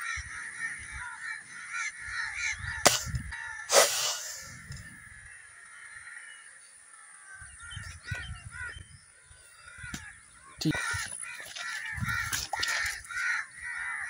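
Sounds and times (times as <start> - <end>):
crows cawing: 0.0 - 3.7, 4.9 - 8.9, 9.6 - 14.0.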